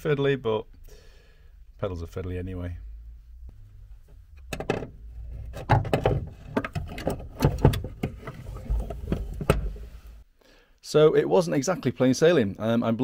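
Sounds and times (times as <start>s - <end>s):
low handling rumble: 1.6s - 10.2s
metal knocks and clanks: 4.4s - 9.9s.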